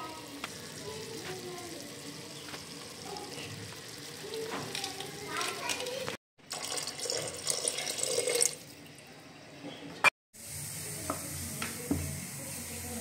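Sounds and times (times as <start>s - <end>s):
water pouring into a pot: 0.0s - 9.1s.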